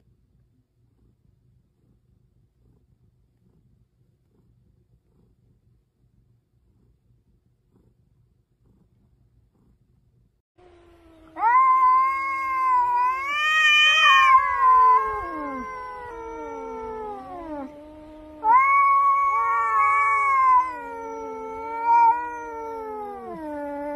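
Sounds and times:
cats yowling: 11.0 - 23.9.

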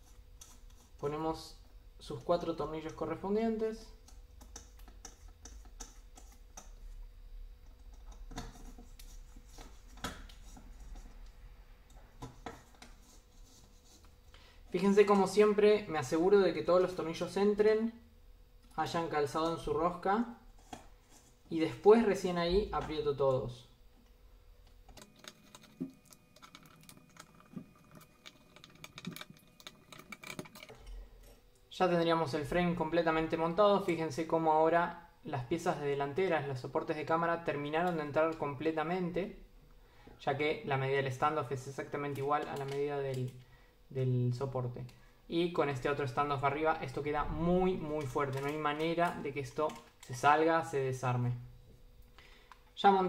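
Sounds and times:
small screws clicking and tapping: 4.0 - 6.8, 24.9 - 31.4.

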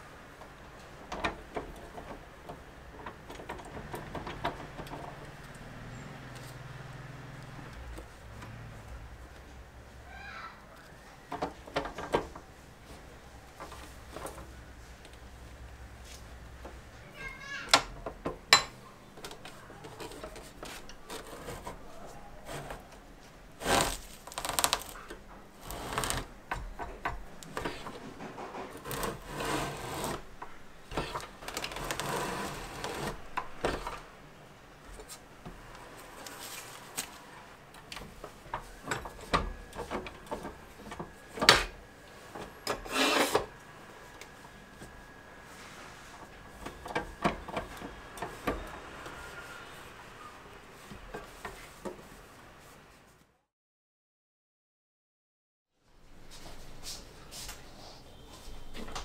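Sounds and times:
paper cutter blade rasping: 19.9 - 22.9, 23.6 - 25.0, 25.6 - 26.3, 27.4 - 33.8, 42.7 - 43.5.

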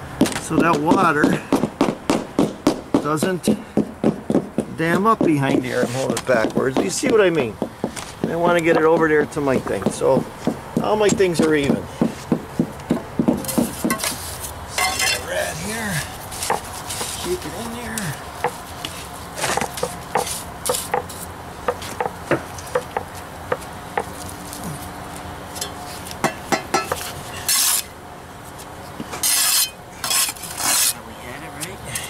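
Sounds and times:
trowel scraping: 13.4 - 21.9, 26.8 - 28.0, 29.1 - 31.0.

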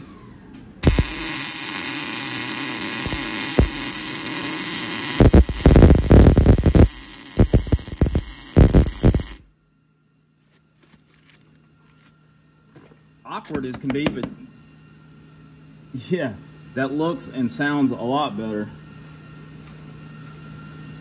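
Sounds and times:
power tool cutting steel: 0.8 - 9.4.

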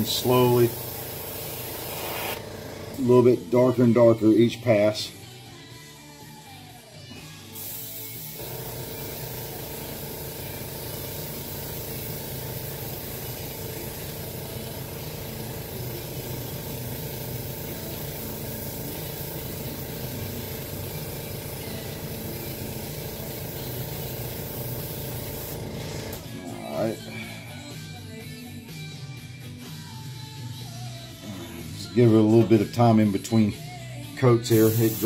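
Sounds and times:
airbrush spraying hiss: 0.0 - 2.4, 7.2 - 25.6, 34.5 - 35.0.

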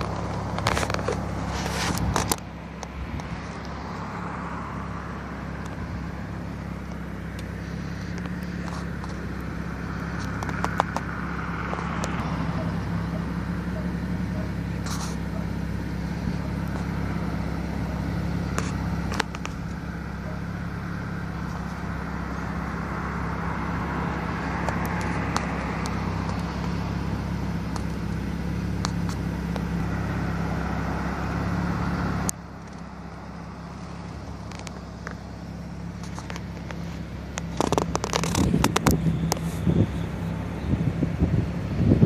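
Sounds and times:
vehicle engine and road noise: 0.0 - 42.0
wind buffeting microphone: 38.0 - 42.0.

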